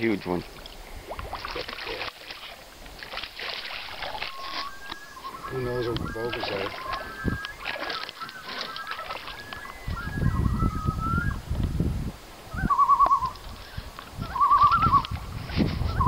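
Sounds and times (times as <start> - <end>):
low rumble of wind or water: 0.0 - 16.0
bird calling: 3.4 - 11.5, 12.4 - 16.0.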